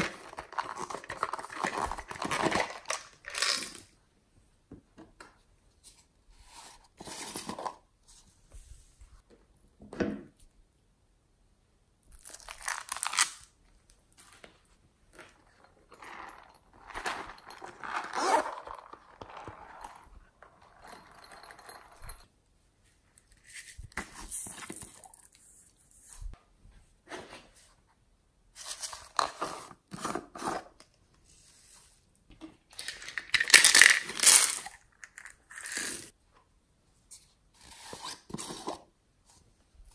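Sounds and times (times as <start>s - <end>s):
plastic tubs being handled: 14.1s - 21.4s.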